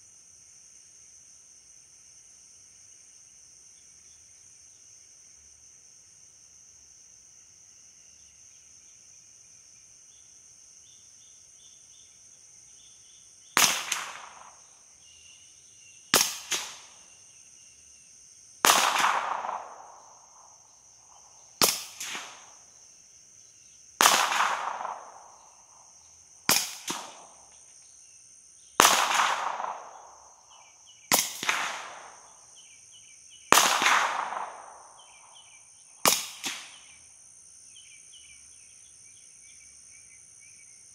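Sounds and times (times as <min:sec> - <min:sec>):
high insect drone: 0:00.0 - 0:40.9
sonic crack: 0:13.6 - 0:14.6, 0:16.2 - 0:17.0, 0:18.6 - 0:20.5, 0:21.6 - 0:22.6, 0:24.0 - 0:25.5, 0:26.5 - 0:27.5, 0:28.8 - 0:30.2, 0:31.1 - 0:32.2, 0:33.5 - 0:35.2, 0:36.0 - 0:36.8
suppressed pistol shots: 0:13.6 - 0:14.6, 0:16.1 - 0:17.0, 0:18.6 - 0:20.5, 0:21.6 - 0:22.5, 0:24.0 - 0:25.7, 0:26.5 - 0:27.4, 0:28.8 - 0:30.3, 0:31.1 - 0:32.2, 0:33.5 - 0:35.4, 0:36.0 - 0:36.8.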